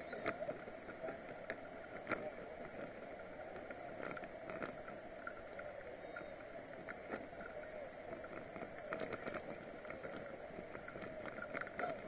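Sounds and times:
bicycle rolling hum: 0.0 - 12.0
bike clicks and rattles: 0.0 - 12.0.

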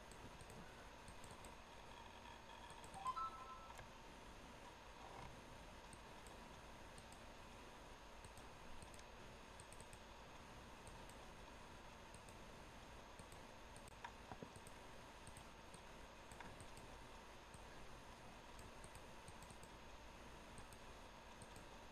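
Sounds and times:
computer mouse clicks: 0.0 - 3.8, 5.1 - 7.3, 8.2 - 11.4, 12.0 - 12.5, 13.1 - 17.7, 18.5 - 19.8, 20.5 - 21.8
low steady hiss: 0.0 - 21.9.

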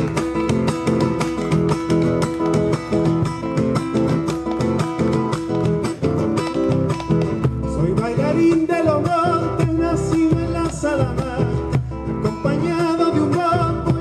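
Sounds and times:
acoustic guitar strumming chords: 0.0 - 14.0
man singing: 7.6 - 14.0.

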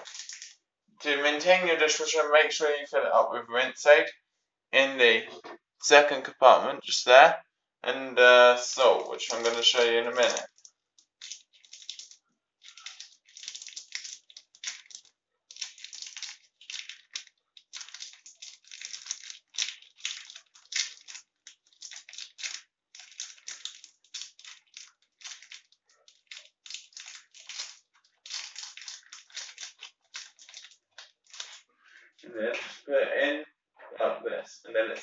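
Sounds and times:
plastic wrapper crackling: 0.0 - 0.5, 8.6 - 31.6.

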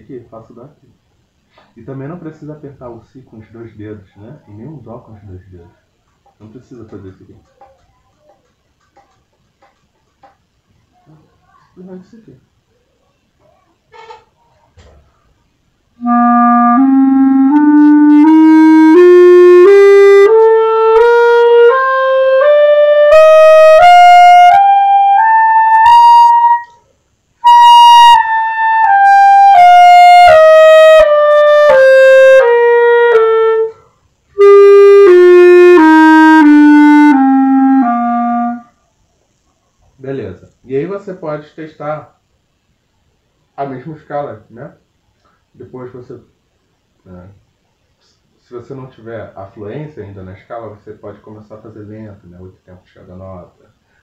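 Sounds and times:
clarinet playing a scale: 16.0 - 26.8, 27.4 - 33.8, 34.4 - 38.7.

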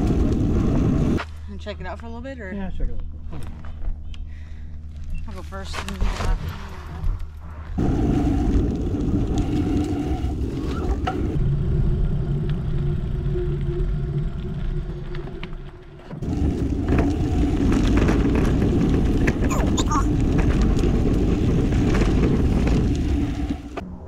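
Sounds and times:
tyres rolling over dirt: 0.0 - 1.2, 5.3 - 23.8
wind buffeting microphone: 16.2 - 23.8.

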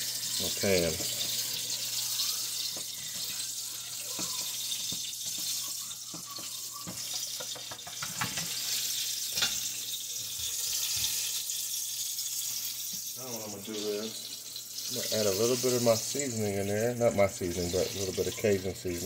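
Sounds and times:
frying sizzle: 0.0 - 19.0
whisk scraping and tapping a pan: 4.0 - 9.7.

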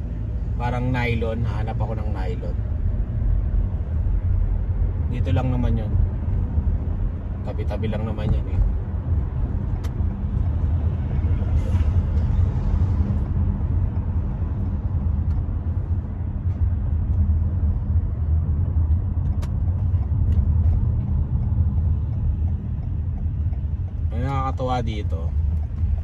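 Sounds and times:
car cabin road rumble: 0.0 - 26.0.

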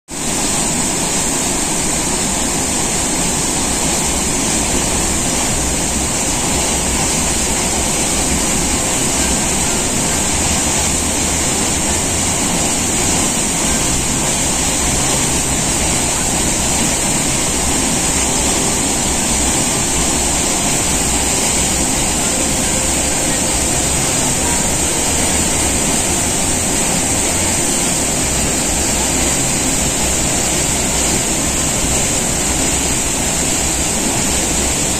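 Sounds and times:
waterfall rushing: 0.1 - 34.9.

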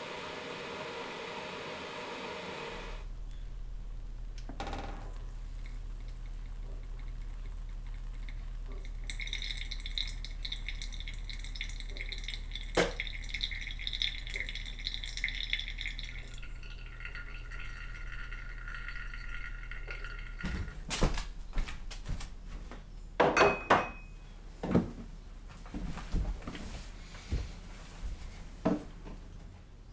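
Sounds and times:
low steady hum: 0.0 - 29.9
water pouring onto coffee grounds: 5.0 - 21.0.

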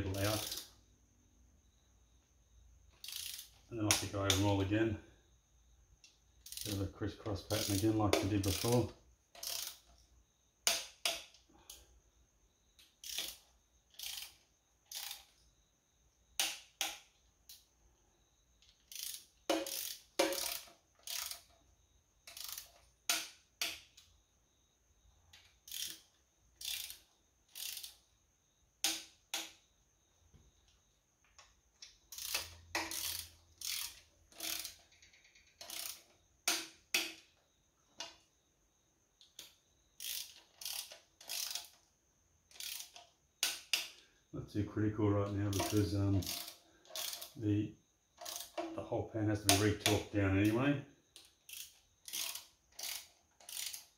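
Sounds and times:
torque wrench clicking: 0.1 - 0.8, 2.9 - 4.5, 6.0 - 6.8, 7.4 - 10.0, 10.6 - 11.8, 12.8 - 15.4, 16.4 - 17.6, 18.6 - 21.6, 22.2 - 24.1, 25.3 - 28.0, 28.8 - 29.6, 31.4 - 37.3, 39.2 - 41.9, 42.5 - 44.0, 45.5 - 47.4, 48.2 - 48.8, 49.5 - 53.9.

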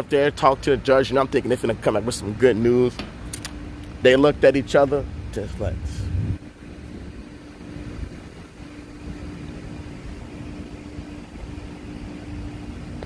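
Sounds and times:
constant droning tone: 0.0 - 13.0
low rumble: 5.0 - 7.1.

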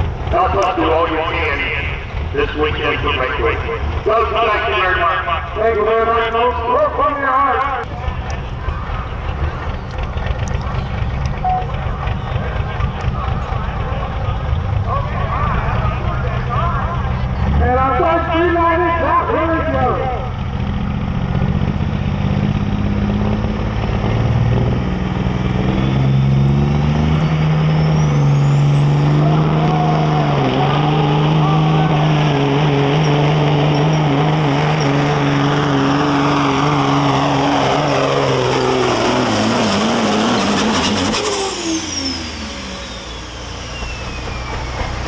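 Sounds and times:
diesel truck engine under load: 0.0 - 45.0
turbocharger whistle: 27.1 - 32.1, 36.4 - 45.0.

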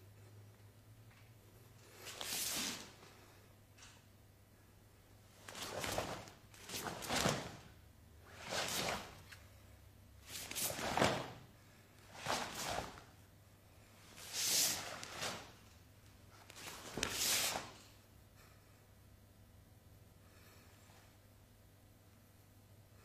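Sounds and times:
whooshing martial arts techniques: 5.4 - 9.4, 10.2 - 11.5, 12.1 - 13.1, 14.1 - 15.6, 16.6 - 17.8.

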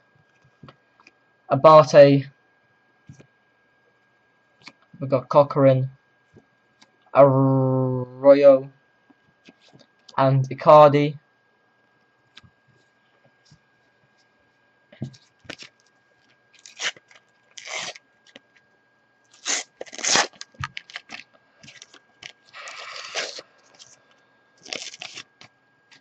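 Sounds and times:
foil packet tearing and crinkling: 15.2 - 15.9, 16.5 - 18.6, 19.3 - 24.0, 24.6 - 26.0.

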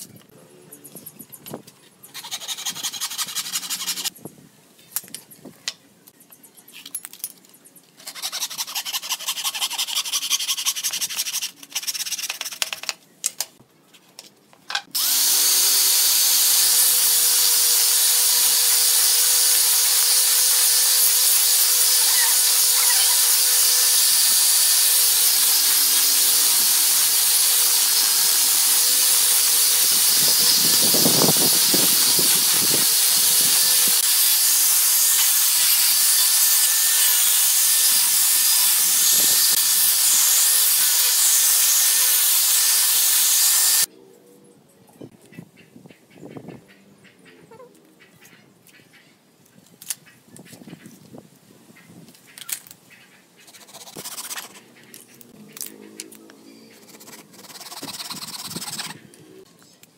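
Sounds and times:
angle grinder sanding wood: 2.1 - 4.1, 8.0 - 12.7, 14.9 - 43.9, 53.5 - 59.1
hand saw cutting wood: 2.1 - 4.1, 8.0 - 12.9, 14.8 - 43.9, 53.4 - 59.1.

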